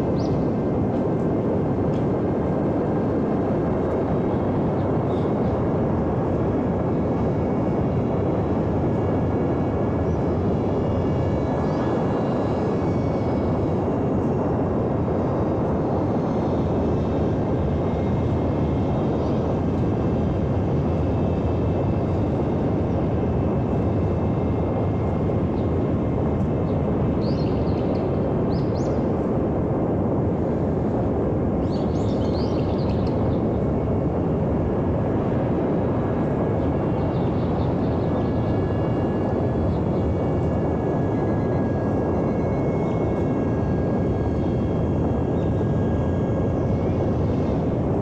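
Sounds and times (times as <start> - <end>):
model airplane motor whine: 0.0 - 48.0.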